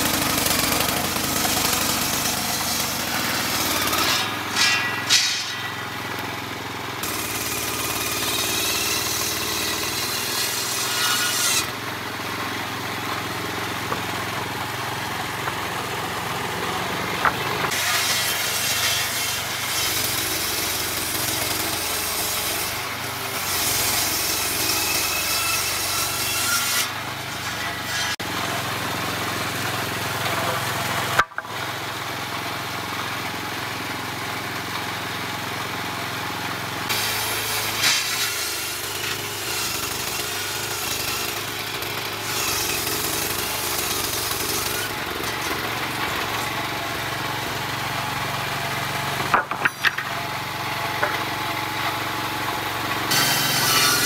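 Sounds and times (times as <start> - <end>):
saw blade ripping wooden planks: 0.0 - 12.6, 13.3 - 28.7, 36.9 - 54.0
sawmill machine running: 0.0 - 54.0.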